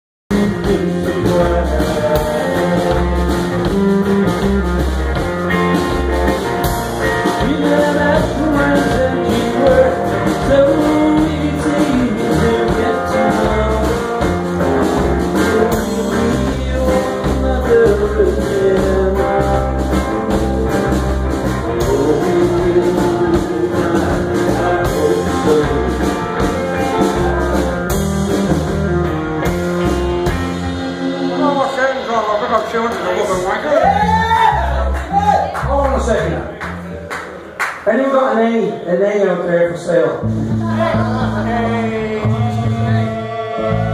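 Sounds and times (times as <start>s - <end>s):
electric guitar lead line bending: 0.3s - 35.0s
live rock band playing: 0.3s - 37.8s, 40.1s - 43.9s.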